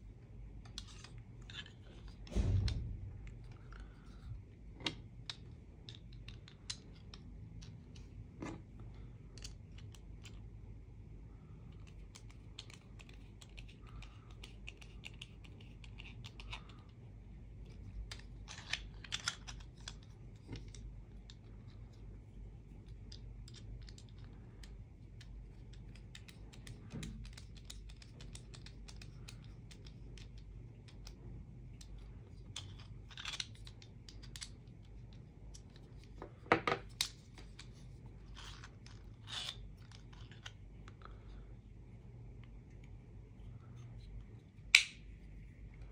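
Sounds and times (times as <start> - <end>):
plastic parts clacking: 0.6 - 2.8, 3.4 - 8.7, 17.6 - 22.0, 22.8 - 41.1.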